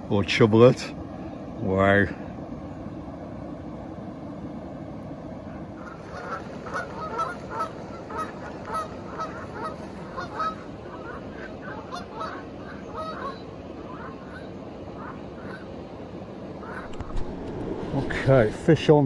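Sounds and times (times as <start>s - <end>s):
geese honking: 5.8s - 15.7s, 16.6s - 17.1s.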